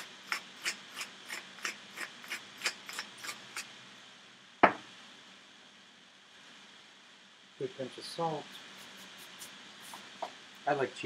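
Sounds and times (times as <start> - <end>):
pepper mill grinding: 0.0 - 3.7, 8.4 - 10.1.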